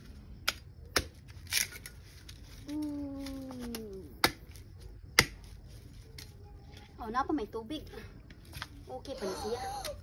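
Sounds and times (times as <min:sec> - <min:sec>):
knife chopping coconut husk: 0:00.4 - 0:01.7, 0:04.1 - 0:05.6
person humming: 0:02.6 - 0:04.1.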